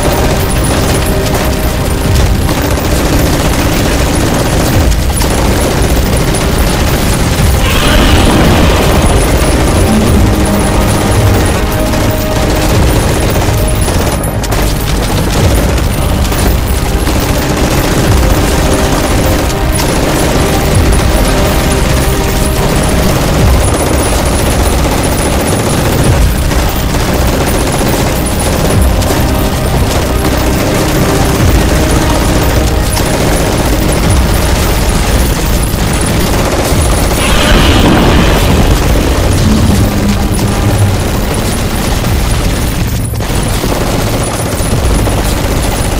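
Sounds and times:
booming explosions: 0:00.0 - 0:45.9
rapid gunfire: 0:00.0 - 0:45.9.

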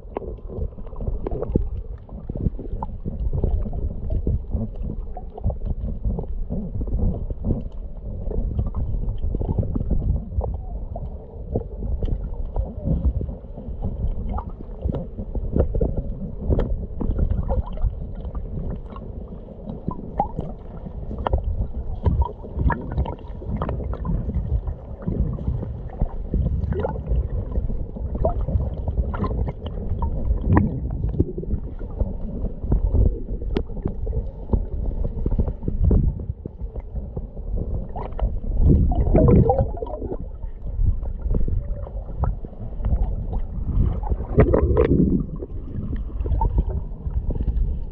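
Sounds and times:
low rumble of moving water: 0:00.0 - 0:47.9
small clicks and pops underwater: 0:00.0 - 0:47.9
bubbling surge: 0:19.8 - 0:34.8, 0:37.6 - 0:47.9.

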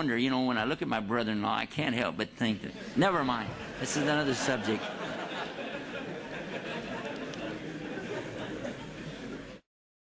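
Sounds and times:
audience laughing: 0:02.7 - 0:09.6.

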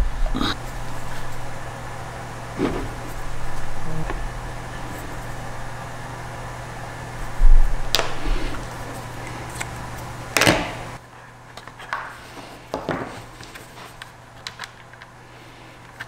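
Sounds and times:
steady hum: 0:00.0 - 0:16.0
heavy low thump: 0:07.4 - 0:07.9.

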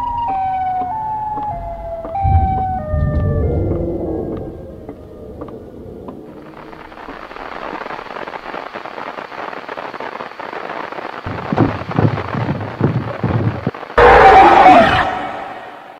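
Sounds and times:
tape static hiss: 0:01.1 - 0:14.7
heavy low thuds: 0:01.2 - 0:06.4.

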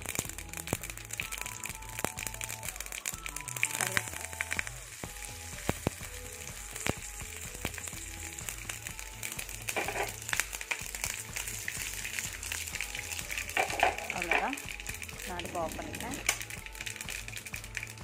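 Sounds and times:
spices sizzling in hot oil: 0:00.0 - 0:18.0
small pops: 0:05.6 - 0:06.1.

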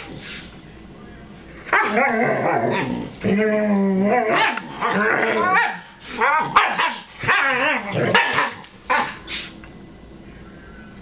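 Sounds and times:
dogs yowling and barking: 0:01.7 - 0:09.3.

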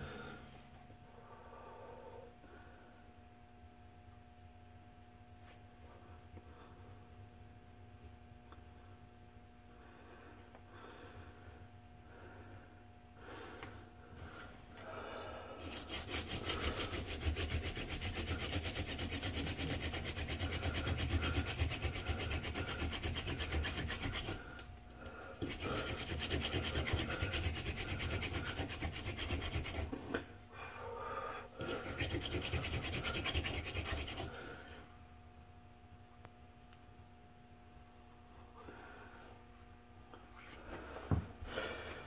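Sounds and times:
wooden spindle rubbing rasp: 0:15.6 - 0:24.6, 0:25.4 - 0:30.2, 0:31.6 - 0:34.4.

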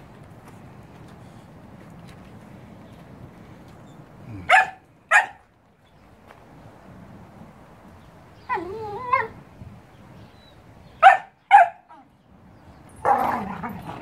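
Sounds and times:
dog barking: 0:04.4 - 0:05.4, 0:11.0 - 0:11.9
dog whining: 0:08.4 - 0:09.4.

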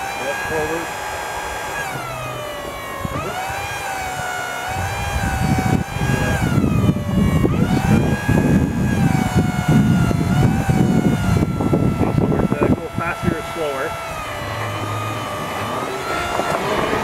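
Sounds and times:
hydraulic pump motor whining: 0:00.0 - 0:17.0
rough low rumble: 0:04.7 - 0:17.0.

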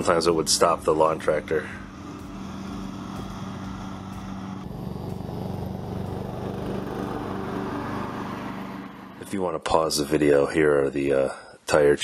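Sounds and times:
lawn tractor engine running: 0:00.4 - 0:09.3.

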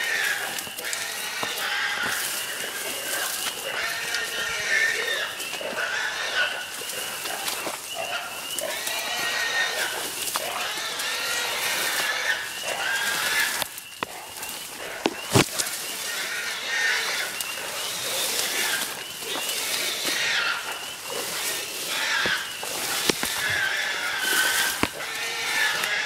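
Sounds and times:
rustle of grass: 0:00.0 - 0:26.0
hog squealing: 0:08.0 - 0:26.0.

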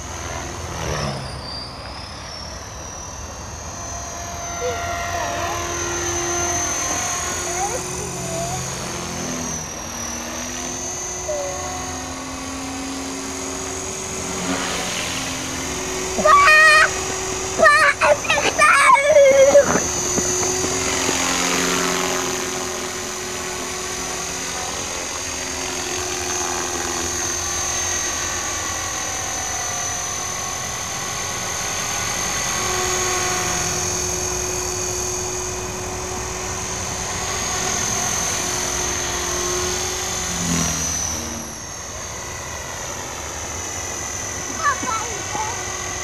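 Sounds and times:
model helicopter motor whine: 0:00.0 - 0:46.0.

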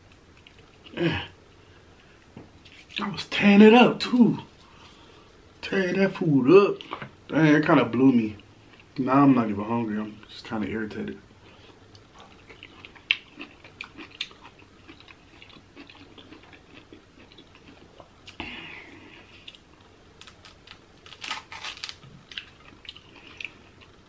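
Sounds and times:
chewing and mouth sounds: 0:11.5 - 0:20.4, 0:22.2 - 0:24.0
crab shell crackling: 0:19.4 - 0:24.0.

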